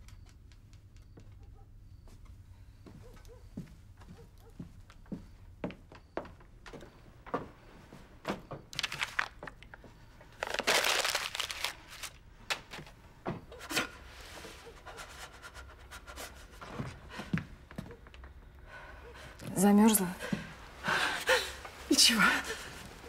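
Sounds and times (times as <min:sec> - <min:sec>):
footsteps on hard floor: 0:02.8 - 0:08.7
cloth rustling and crumpling: 0:08.7 - 0:12.2.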